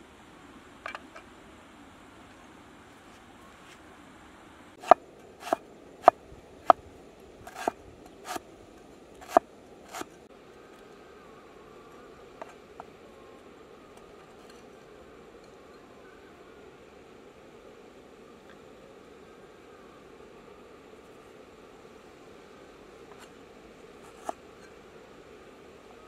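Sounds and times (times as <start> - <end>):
cleaver chopping on wooden block: 4.8 - 6.8, 7.5 - 8.4, 9.2 - 10.2.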